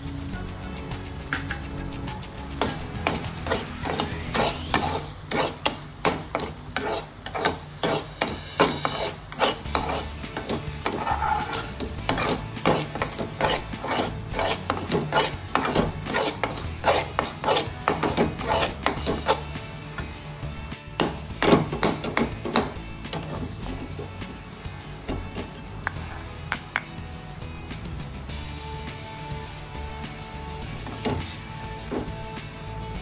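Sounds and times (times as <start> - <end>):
metal spatula scraping a pan: 2.6 - 20.1, 30.5 - 32.4.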